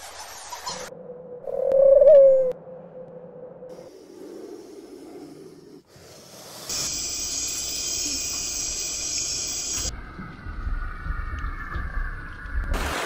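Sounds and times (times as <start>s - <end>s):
snake hissing: 3.7s - 9.9s.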